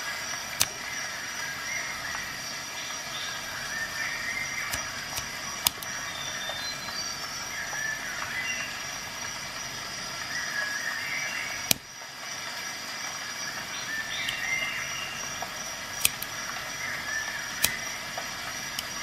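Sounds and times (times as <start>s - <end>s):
steady background hiss: 0.0s - 19.0s
multitool clicking open and shut: 0.6s - 0.8s, 3.7s - 6.6s, 11.6s - 11.9s, 13.9s - 19.0s.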